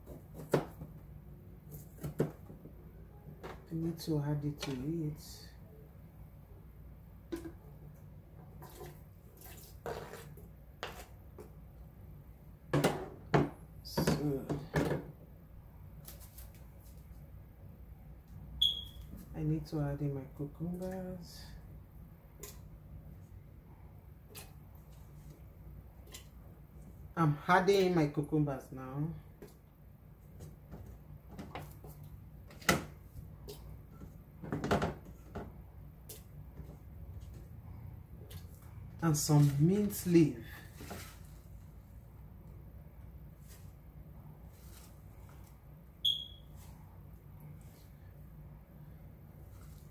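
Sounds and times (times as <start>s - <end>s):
scraping on cutting board: 9.8s - 11.2s.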